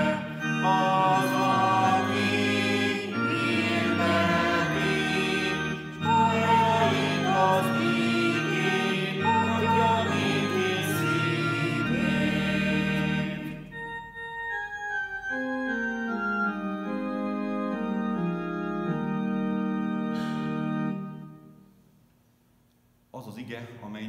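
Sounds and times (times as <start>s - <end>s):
congregation singing: 0.0s - 14.2s
organ playing a hymn: 0.0s - 21.8s.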